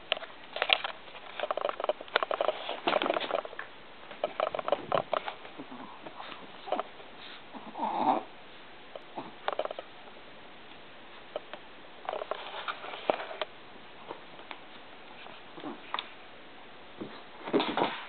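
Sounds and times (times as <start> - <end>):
dogs scuffling and pattering: 0.2 - 7.6, 12.1 - 13.4, 17.0 - 18.0
dog vocal noises: 5.5 - 8.3.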